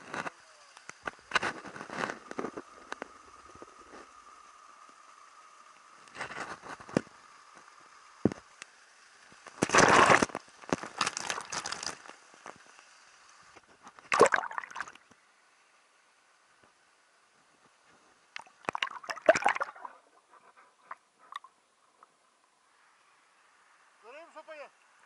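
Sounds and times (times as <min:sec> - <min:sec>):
water splashing and sloshing: 0:09.6 - 0:12.1, 0:13.9 - 0:15.1, 0:18.4 - 0:21.5.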